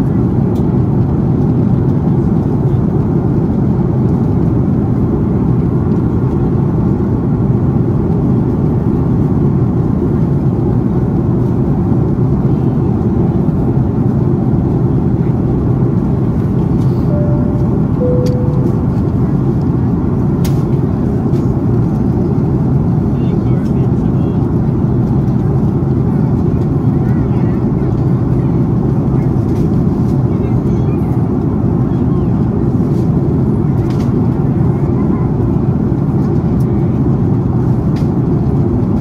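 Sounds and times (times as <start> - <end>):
airplane cabin engine and airflow: 0.0 - 39.0
short cabin chime tones: 17.1 - 19.3.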